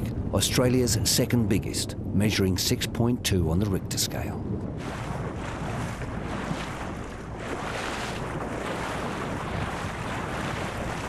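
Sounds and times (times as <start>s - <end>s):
wind buffeting microphone: 0.0s - 11.0s
sea water rushing and splashing: 3.7s - 11.0s.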